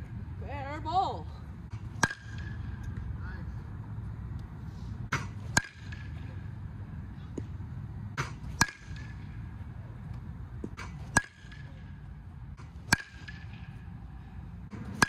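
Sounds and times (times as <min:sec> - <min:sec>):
baseball bat pinging on ball: 0:02.0 - 0:03.0, 0:12.9 - 0:13.7.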